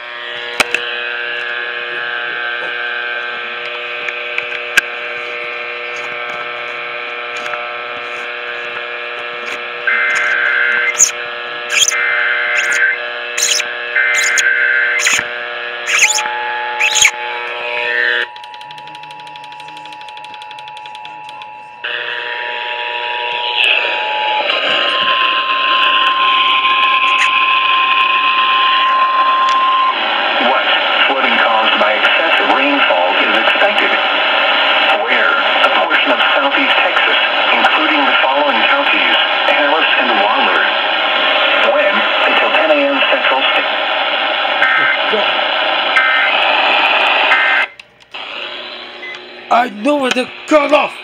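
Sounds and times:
radio buzzing hum: 0.0 - 20.2, 20.8 - 51.0
screeching digital alert tones: 9.9 - 15.2, 15.9 - 17.2.

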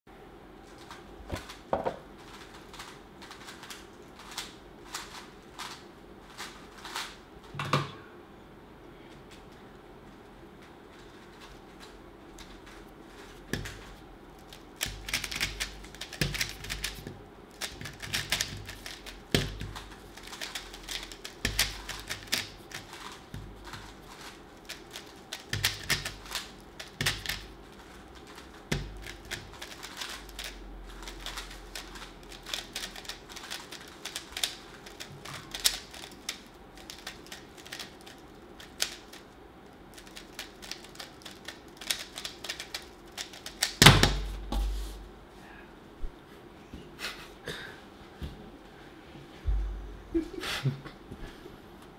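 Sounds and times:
puzzle cube clicking: 17.6 - 27.5, 28.3 - 39.2, 40.0 - 43.8.

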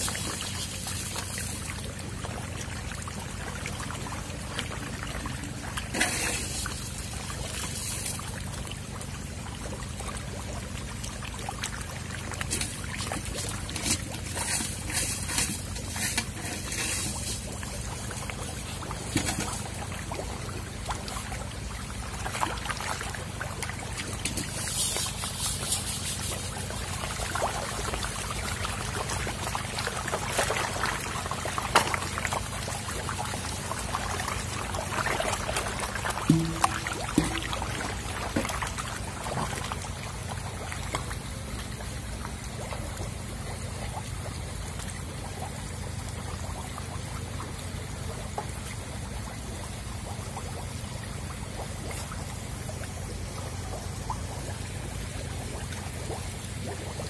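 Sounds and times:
water splashing and sloshing: 0.0 - 57.0.

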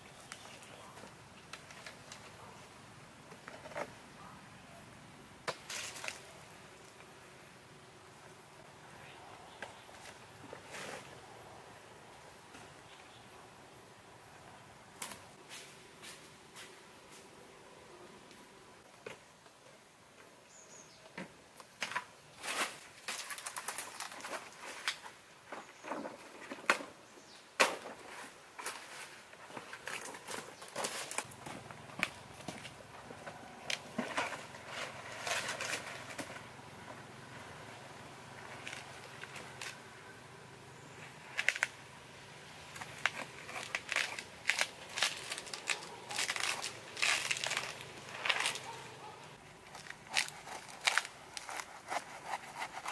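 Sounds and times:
leaves tearing and rustling: 5.5 - 6.9, 22.4 - 25.1, 28.1 - 32.8, 33.4 - 36.3, 38.4 - 39.8, 41.3 - 41.8, 42.7 - 52.9
footsteps on leafy dirt path: 28.2 - 36.1, 42.8 - 52.8.

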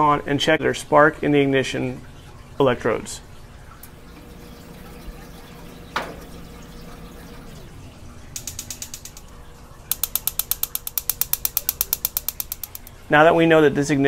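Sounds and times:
electronic igniter clicking: 8.4 - 13.0.

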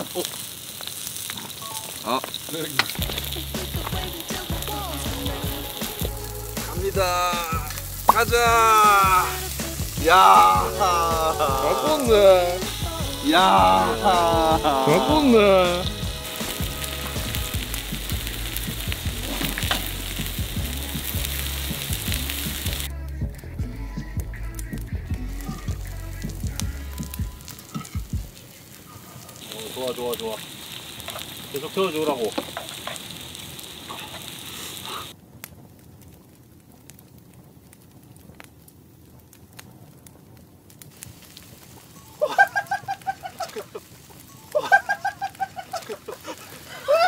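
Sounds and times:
faint crackles and ticks: 0.0 - 9.4, 24.3 - 47.0
food sizzling in frying pan: 0.0 - 22.9, 24.2 - 35.2, 40.8 - 47.0.

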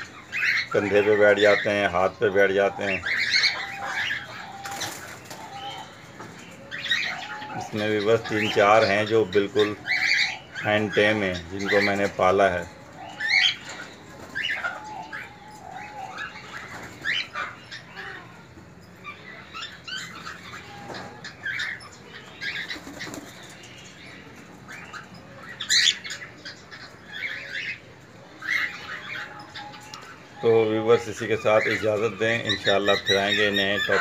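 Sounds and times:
wings fluttering: 4.5 - 5.6, 22.5 - 23.6.

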